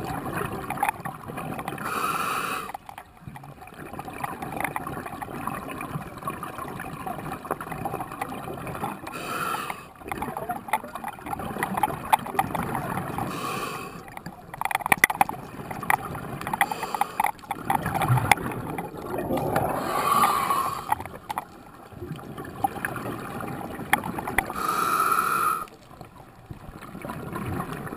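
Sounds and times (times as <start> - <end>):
regulator hiss on inhale: 1.8 - 2.8, 9.1 - 10.0, 13.2 - 14.1, 16.6 - 17.4, 19.6 - 21.0, 24.5 - 25.8
bubbling exhaled air: 15.4 - 25.8.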